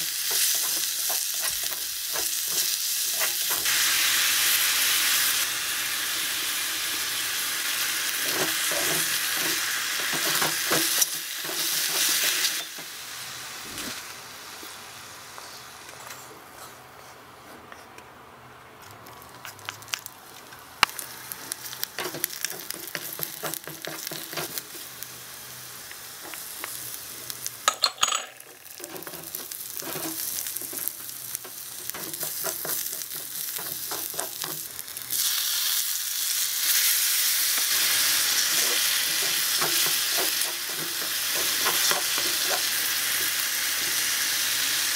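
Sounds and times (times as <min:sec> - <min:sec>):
mushrooms sizzling in a pan: 0:00.0 - 0:15.8, 0:20.8 - 0:44.9.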